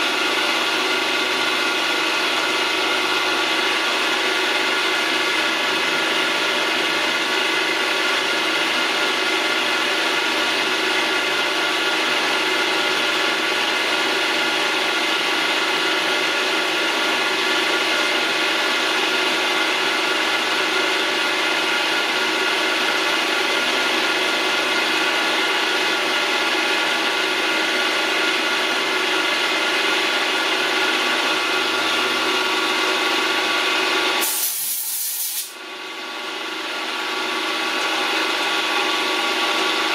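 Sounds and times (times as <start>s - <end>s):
compressed air hiss: 34.2s - 35.6s.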